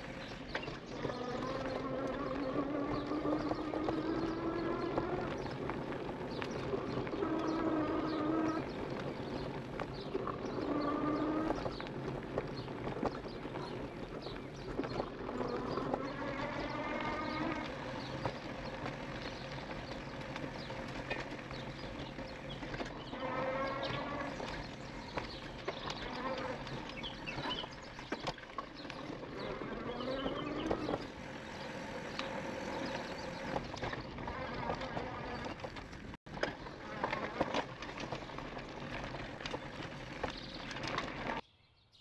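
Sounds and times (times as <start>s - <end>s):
bike rattling over bumps: 0.0s - 41.4s
tyre and trail noise: 0.0s - 42.0s
electric motor whine: 29.1s - 35.5s.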